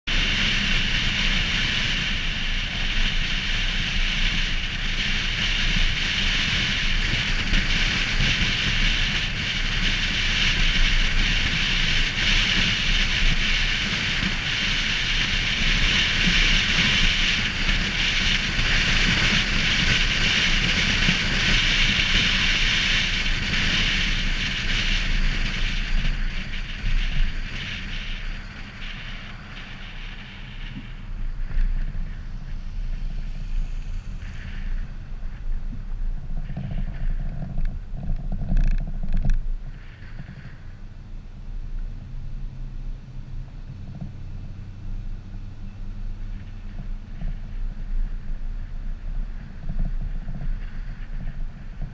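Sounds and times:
car road noise: 0.0s - 51.9s
wind rush: 0.0s - 51.9s
low rumble: 19.4s - 51.9s.

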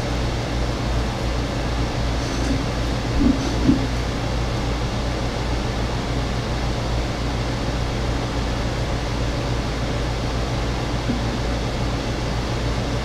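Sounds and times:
low hum with hiss: 0.0s - 13.0s.

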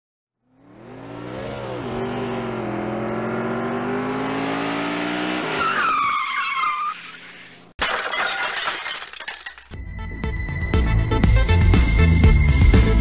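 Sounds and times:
car engine revving: 0.4s - 5.7s
tyres screeching: 5.5s - 7.7s.

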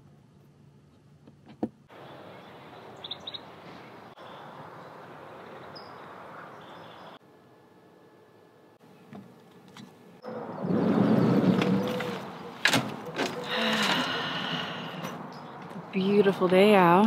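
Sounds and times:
outdoor background noise: 0.0s - 17.0s
bird chirps: 2.0s - 7.2s.

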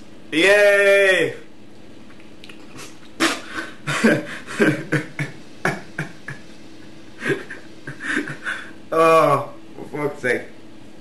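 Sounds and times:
man retching and gagging: 2.5s - 6.2s.

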